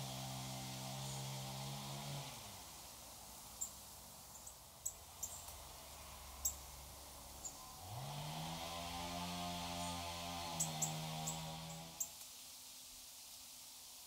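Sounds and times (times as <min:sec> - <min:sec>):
bird high sharp ticks: 0:04.4 - 0:05.6.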